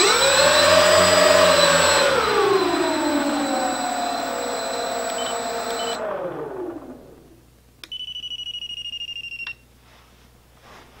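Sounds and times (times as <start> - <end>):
propeller motors winding down: 0.0 - 7.4
click: 5.0 - 6.0.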